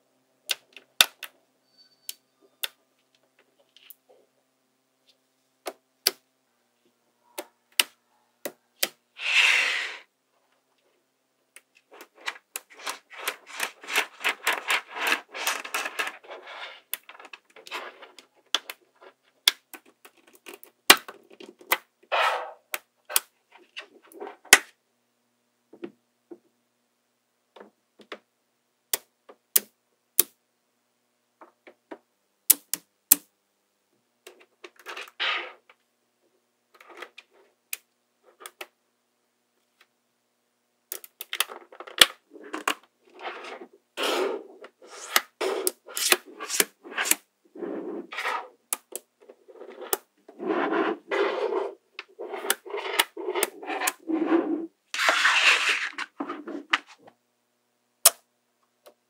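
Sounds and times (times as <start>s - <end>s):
magnetic balls clicking together: 40.9s - 42.9s, 48.7s - 49.1s, 52.0s - 54.0s.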